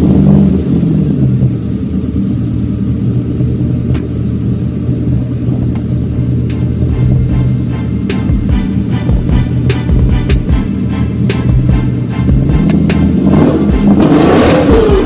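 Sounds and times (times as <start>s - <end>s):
car engine idling with deep rumble: 0.0s - 15.0s.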